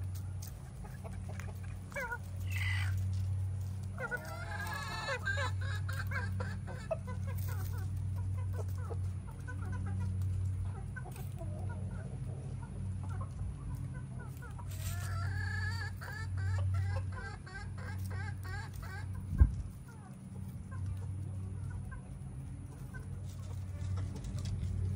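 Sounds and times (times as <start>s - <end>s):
hens clucking: 0.0s - 24.9s.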